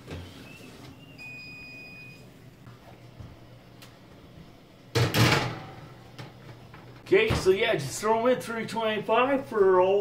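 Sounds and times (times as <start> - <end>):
appliance electronic beep: 0.2 - 2.4.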